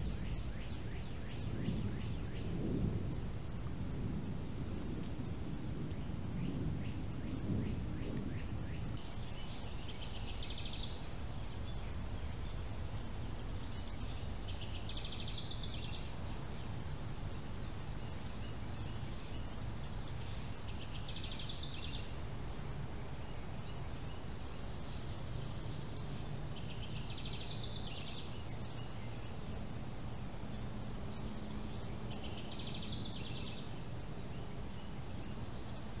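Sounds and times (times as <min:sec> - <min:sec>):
buzzy pulsed insect call: 0:00.0 - 0:36.0
high-pitched insect trill: 0:00.0 - 0:36.0
low steady background noise: 0:00.0 - 0:36.0.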